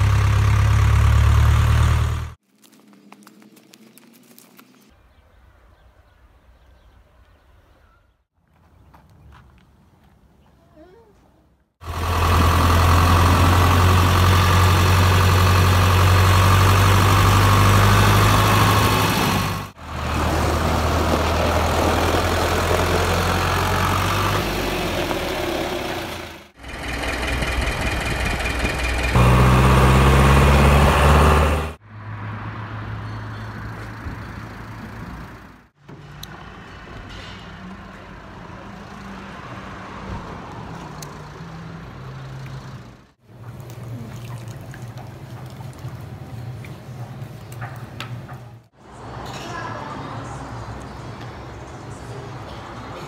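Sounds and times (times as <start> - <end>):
tractor diesel engine running: 0.0 - 2.4, 11.8 - 31.8, 33.5 - 35.7.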